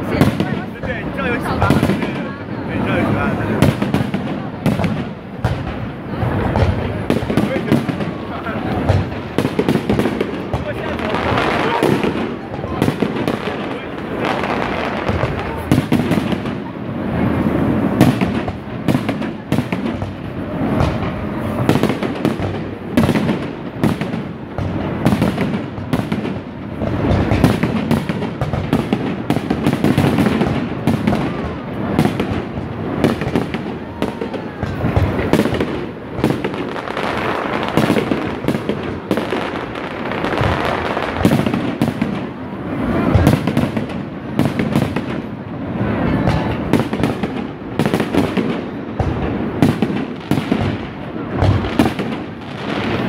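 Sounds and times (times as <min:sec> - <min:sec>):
fireworks bursting: 0:00.0 - 0:53.0
fireworks crackling: 0:00.0 - 0:53.0.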